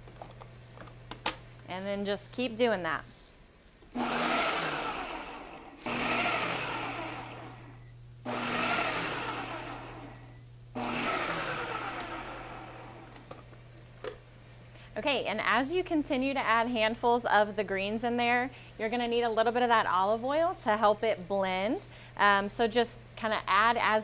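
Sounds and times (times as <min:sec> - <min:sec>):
food processor pulsing: 0:03.9 - 0:13.3.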